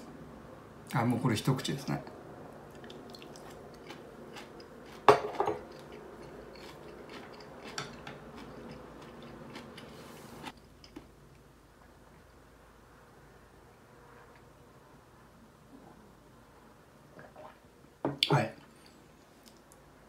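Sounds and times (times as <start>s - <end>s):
soft chewing: 2.7s - 12.4s, 18.6s - 19.9s.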